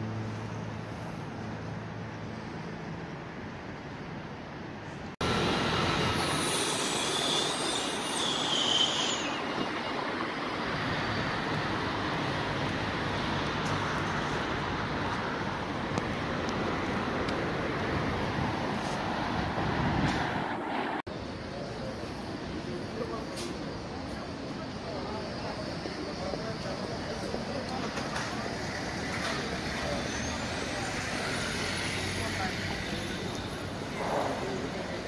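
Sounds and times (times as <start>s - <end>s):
city street traffic: 0.0s - 35.0s
high-pitched metallic squeal: 5.8s - 9.8s.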